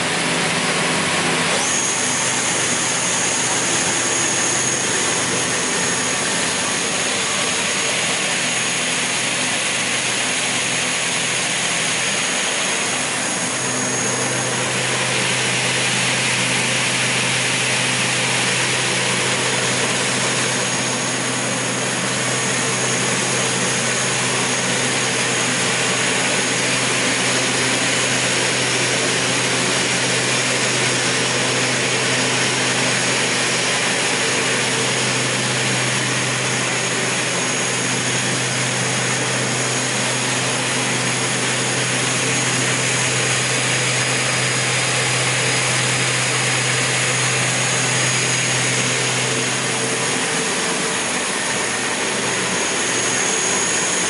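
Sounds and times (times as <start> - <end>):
saw motor hum with high whine: 0.0 - 54.0.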